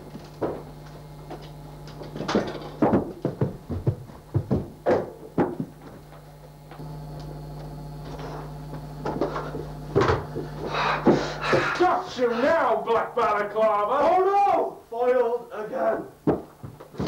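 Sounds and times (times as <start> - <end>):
steady low hum: 0.0 - 17.0
knocks and thumps: 2.1 - 6.2, 16.2 - 17.0.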